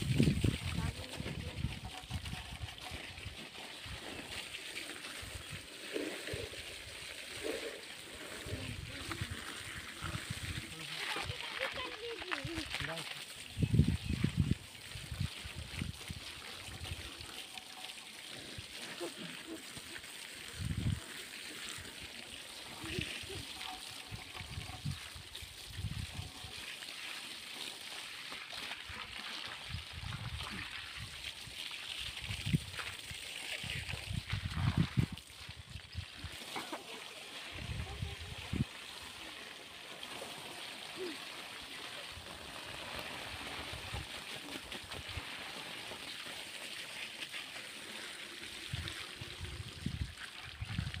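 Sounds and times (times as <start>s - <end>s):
garden hose water spraying: 0.0s - 51.0s.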